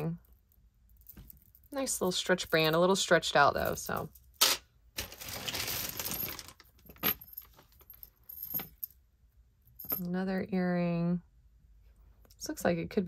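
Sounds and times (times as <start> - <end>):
metal jewelry jingling and clinking: 0.2 - 4.3, 5.8 - 9.0, 9.7 - 10.1.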